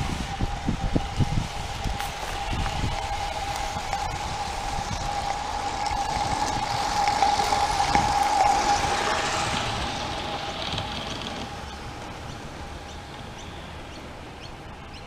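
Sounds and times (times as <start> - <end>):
steam locomotive hiss: 0.0 - 14.4
constant high tone: 0.0 - 15.0.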